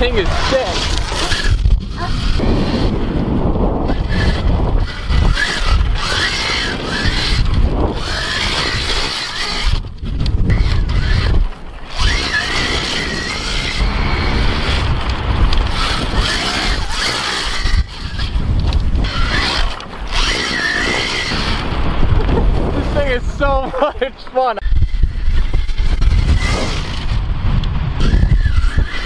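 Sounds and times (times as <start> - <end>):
electric motor high whine: 0.0 - 21.7
wind rumble on microphone: 0.0 - 29.0.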